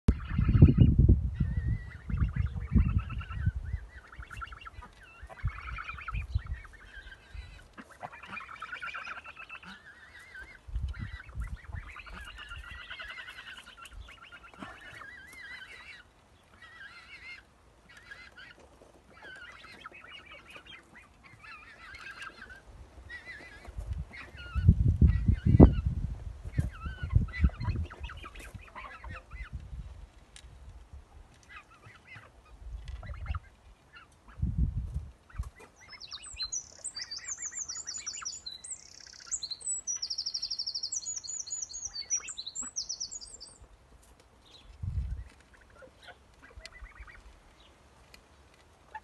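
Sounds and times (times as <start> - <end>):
geese honking: 1.9 - 24.6.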